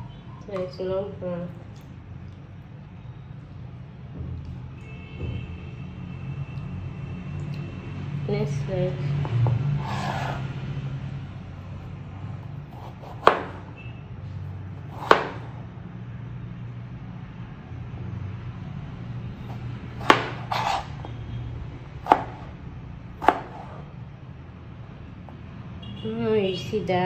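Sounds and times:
knife chopping on cutting board: 9.2s - 10.4s, 12.7s - 13.7s, 14.9s - 15.6s, 19.4s - 21.2s, 22.0s - 22.5s, 23.2s - 23.8s.

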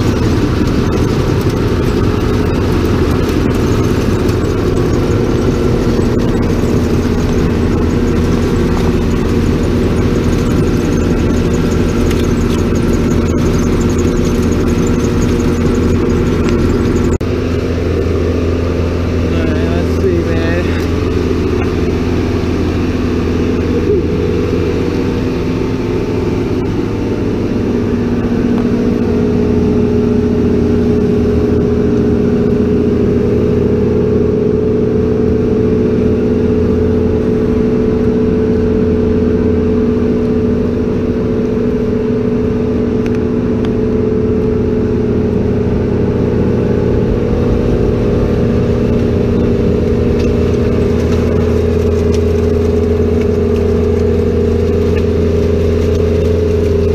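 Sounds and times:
harvester engine running: 0.0s - 56.9s.

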